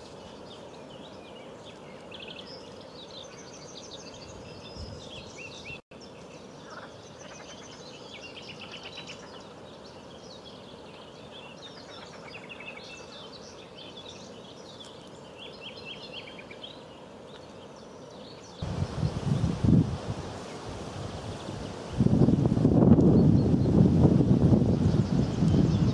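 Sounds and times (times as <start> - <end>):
outdoor background hiss: 0.0 - 25.9
songbirds chirping and singing: 0.1 - 19.6, 24.7 - 25.9.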